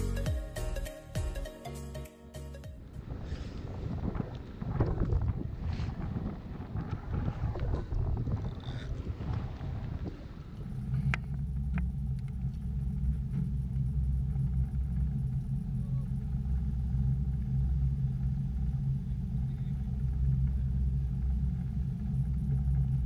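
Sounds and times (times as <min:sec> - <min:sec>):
boat engine humming: 0:09.7 - 0:23.0.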